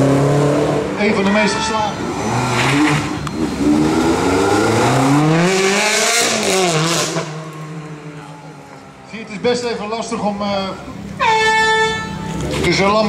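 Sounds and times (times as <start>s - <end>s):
sports car engine accelerating: 0.0s - 1.0s, 2.0s - 9.5s.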